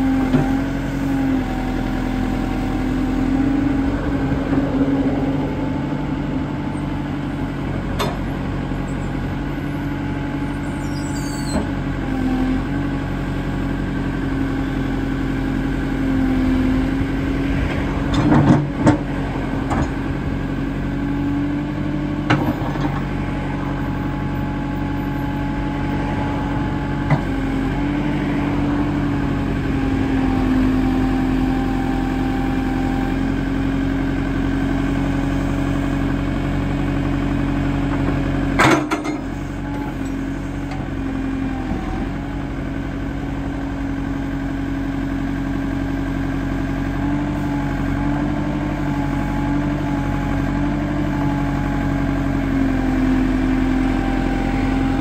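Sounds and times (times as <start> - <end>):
diesel engine running: 0.0 - 55.0
hydraulic clunks: 7.8 - 8.4, 38.0 - 40.9.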